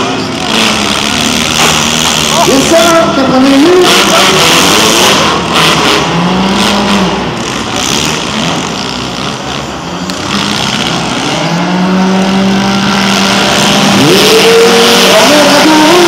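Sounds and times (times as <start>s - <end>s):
car engines revving: 0.0s - 16.0s.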